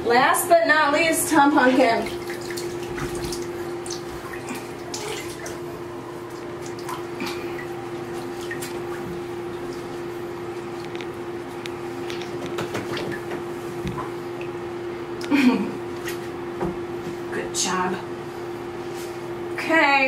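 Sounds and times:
steady low hum: 0:00.0 - 0:20.0
water splashing in a bathtub: 0:01.2 - 0:11.2, 0:12.0 - 0:14.6.

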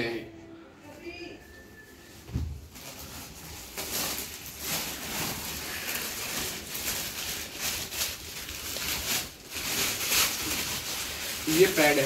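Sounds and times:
plastic packaging crinkling: 0:02.5 - 0:12.0.

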